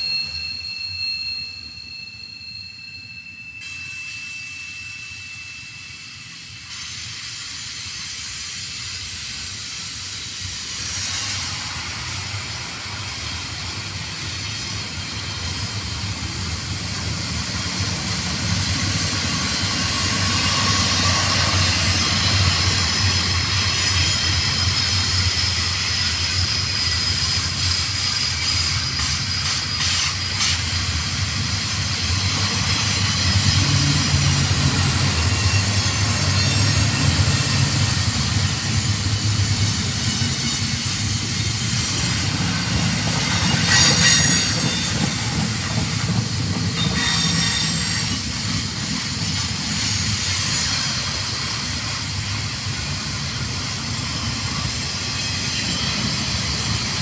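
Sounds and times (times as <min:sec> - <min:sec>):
high wheel squeal: 0:00.0 - 0:57.0
train wheels rumbling on rail: 0:00.0 - 0:57.0.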